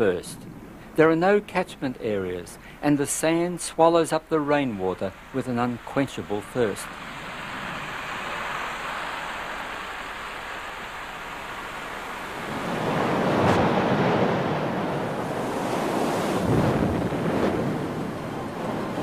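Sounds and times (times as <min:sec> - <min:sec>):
heavy rain hissing: 0:02.5 - 0:19.0
surf breaking on beach: 0:05.6 - 0:19.0.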